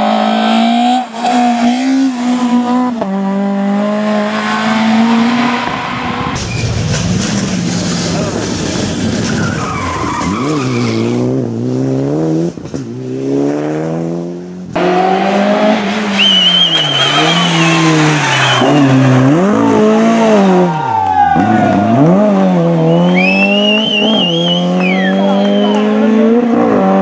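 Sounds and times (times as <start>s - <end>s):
rally car engines revving: 0.0s - 27.0s
tyre squeal: 9.2s - 11.2s, 16.0s - 19.9s, 22.8s - 25.8s.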